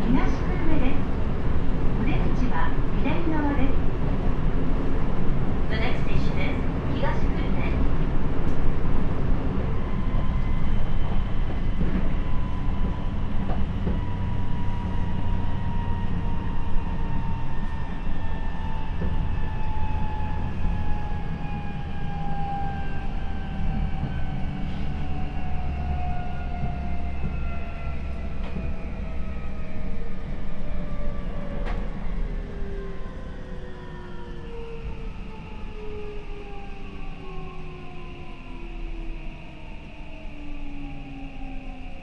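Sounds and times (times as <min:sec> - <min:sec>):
wheels rumbling on rail: 0:00.0 - 0:41.8
rail joint clicks: 0:07.0 - 0:15.6, 0:17.1 - 0:21.0, 0:23.4 - 0:29.9, 0:30.5 - 0:32.2.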